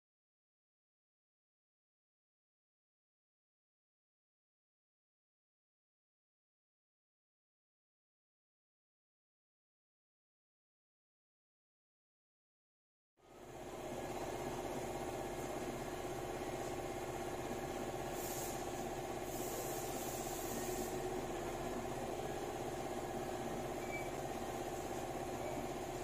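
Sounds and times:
brief hissing: 0:18.1 - 0:21.1.

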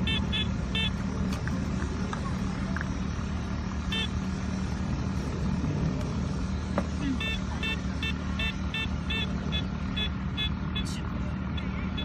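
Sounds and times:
metal detector beep: 0:00.0 - 0:01.0, 0:03.9 - 0:04.1, 0:07.1 - 0:11.0
grass cutter engine drone: 0:00.0 - 0:12.0.

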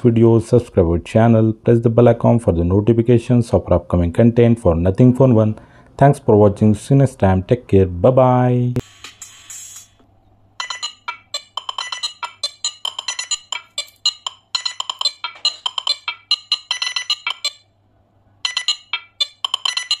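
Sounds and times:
bright plinking percussive music: 0:10.6 - 0:17.7, 0:18.5 - 0:20.0.

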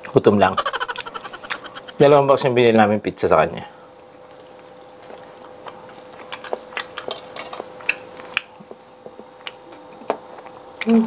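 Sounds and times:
faint steady hum: 0:00.0 - 0:11.0
clicks and taps of eating: 0:04.3 - 0:11.0.

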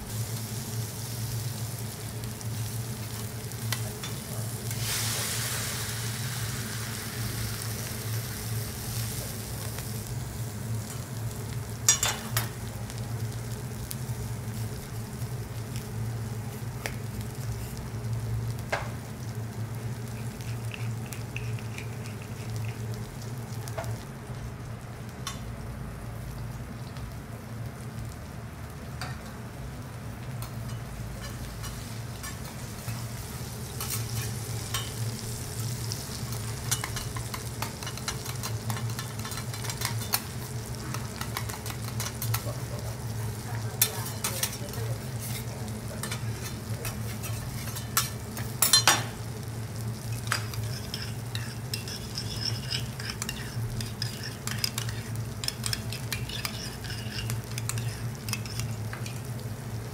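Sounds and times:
food sizzling on hot plate: 0:00.0 - 0:59.9
metal utensils scraping and tapping: 0:11.9 - 0:12.5, 0:20.2 - 0:22.8, 0:30.4 - 0:33.0, 0:36.3 - 0:42.5, 0:43.8 - 0:49.1, 0:50.2 - 0:59.2.

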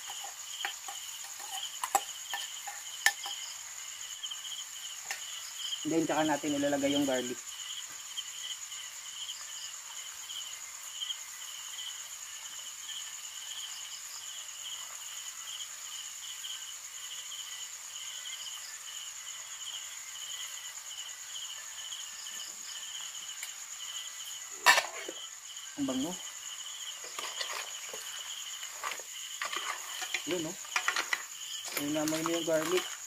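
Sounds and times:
insect chirping: 0:00.0 - 0:33.0
insect high-pitched trill: 0:00.0 - 0:33.0.

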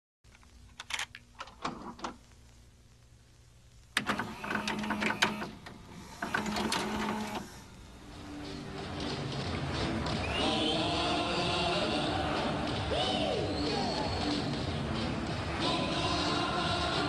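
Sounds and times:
tape loading mechanism whirring: 0:04.0 - 0:07.9.

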